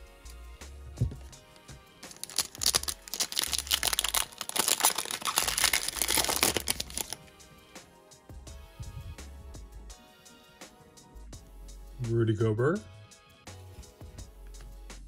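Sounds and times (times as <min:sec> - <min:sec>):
background music with bass line: 0:00.0 - 0:15.0
foil wrapper crinkling and tearing: 0:02.1 - 0:07.2.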